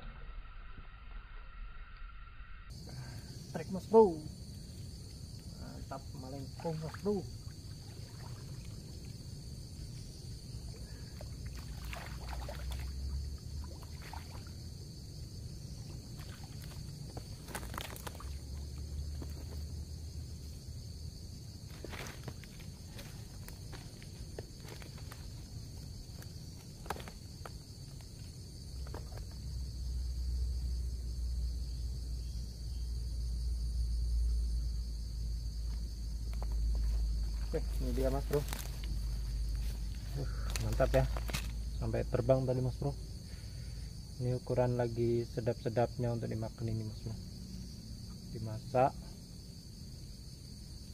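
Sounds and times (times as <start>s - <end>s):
insects chirring: 0.0s - 50.9s
fish splashing in water: 6.6s - 9.2s, 11.1s - 14.6s, 15.8s - 18.7s.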